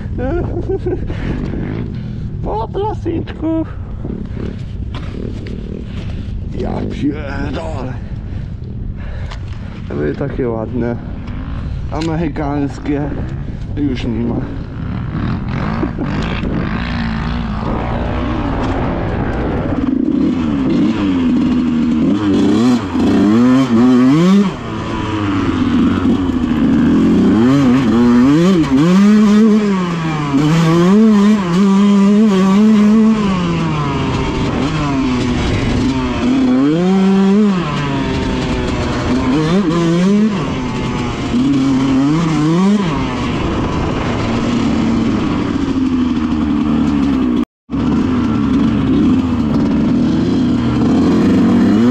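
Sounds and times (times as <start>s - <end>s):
dirt bike engine revving: 0.0s - 2.4s, 10.5s - 51.9s.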